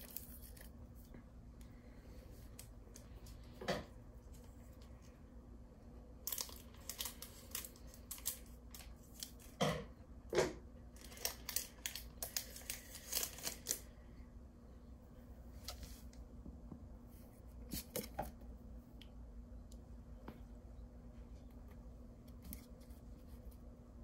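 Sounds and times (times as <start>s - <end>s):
foil wrapper crinkling and tearing: 0.0s - 0.8s, 6.2s - 9.6s, 10.9s - 13.9s.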